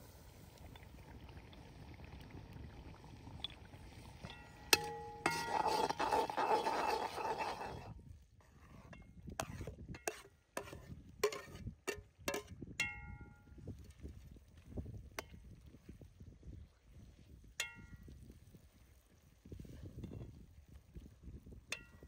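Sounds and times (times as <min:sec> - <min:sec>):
ladle scraping and stirring: 0:03.3 - 0:12.6
ladle clanking on iron pot: 0:04.2 - 0:07.9, 0:09.4 - 0:13.1.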